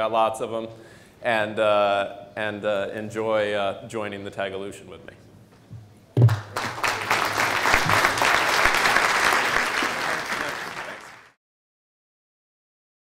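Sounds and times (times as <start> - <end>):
audience applauding: 6.3 - 11.4.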